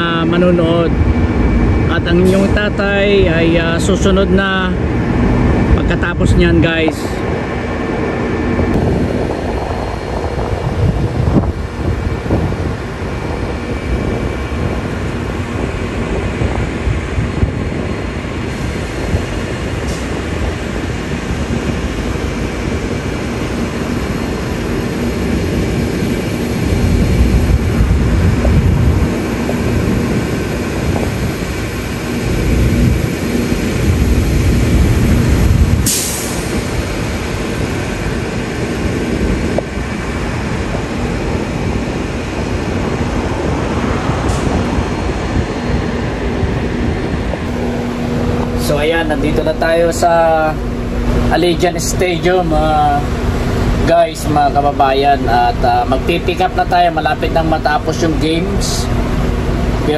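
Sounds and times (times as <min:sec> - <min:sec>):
bus engine idling: 0:06.7 - 0:59.9
short sharp hiss: 0:35.9 - 0:36.6.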